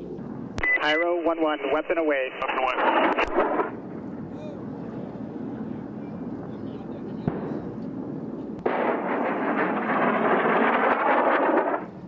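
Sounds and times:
explosion sharp crack: 2.8 - 3.8, 8.6 - 11.9
loud rushing blast: 8.6 - 11.9.

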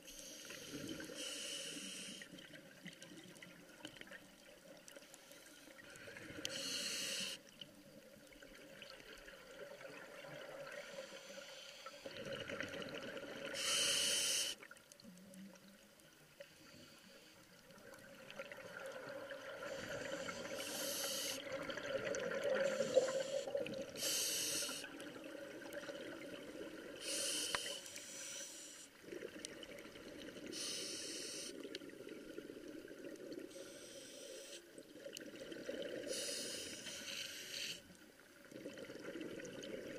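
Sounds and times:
regulator inhalation hisses: 0.1 - 2.3, 6.3 - 7.4, 13.6 - 14.6, 19.6 - 21.5, 22.6 - 25.0, 27.0 - 28.9, 30.5 - 31.6, 33.5 - 34.7, 36.1 - 37.9.

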